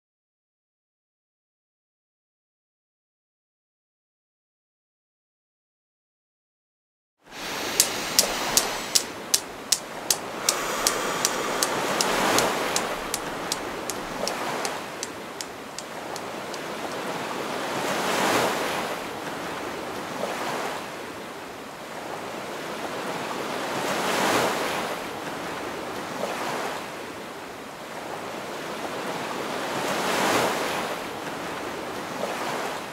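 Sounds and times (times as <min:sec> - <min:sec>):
deep breathing: 0:07.3 - 0:17.0
waves washing on shore: 0:07.3 - 0:32.9
newton's cradle clicking: 0:07.4 - 0:16.7.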